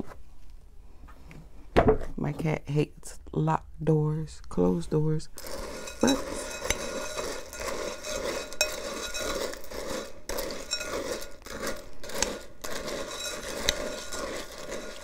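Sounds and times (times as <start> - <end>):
spoon stirring crunchy cereal: 5.2 - 15.0
spoon clinking against glass: 5.7 - 15.0.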